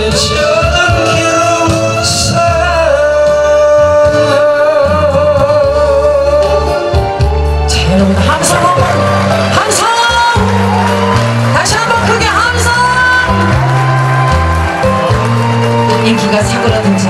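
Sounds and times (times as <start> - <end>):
man singing into a microphone: 0.0 - 8.6
instrumental accompaniment: 0.0 - 17.0.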